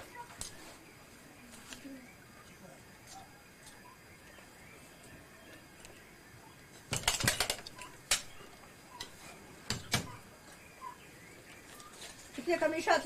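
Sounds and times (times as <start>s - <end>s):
wooden loom parts knocking: 6.9s - 8.3s.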